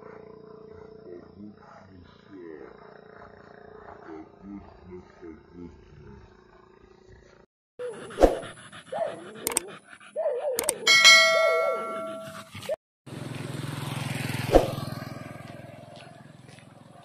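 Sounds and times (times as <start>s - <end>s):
motor scooter engine passing: 0.0s - 7.5s, 10.8s - 17.0s
dog whining: 7.8s - 12.5s
sharp clicks: 9.4s - 9.7s, 10.6s - 10.8s
bright chime: 10.9s - 12.4s.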